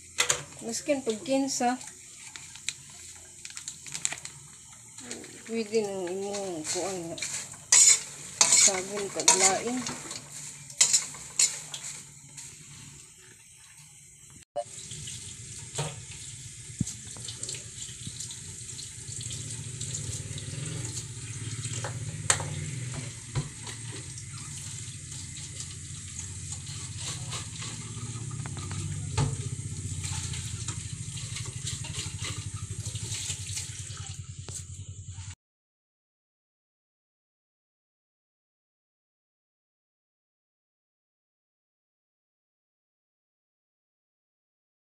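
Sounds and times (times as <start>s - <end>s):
water running from a tap: 0.0s - 35.2s
spatula scraping a pan: 5.3s - 13.1s, 22.4s - 33.8s.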